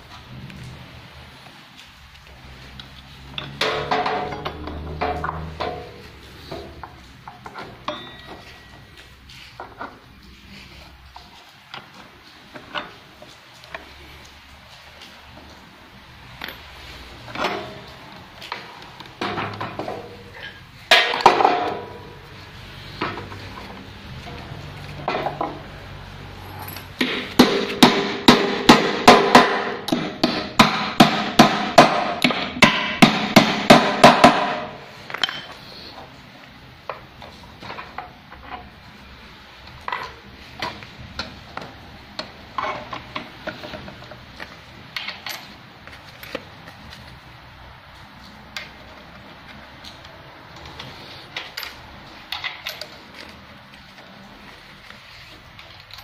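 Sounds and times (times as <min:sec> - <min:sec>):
hammer striking metal: 0:07.8 - 0:08.7, 0:27.0 - 0:35.5.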